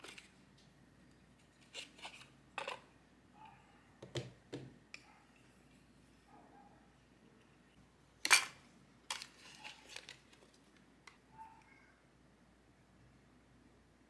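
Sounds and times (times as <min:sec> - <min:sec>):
plastic glasses frames clicking: 0:08.3 - 0:11.2.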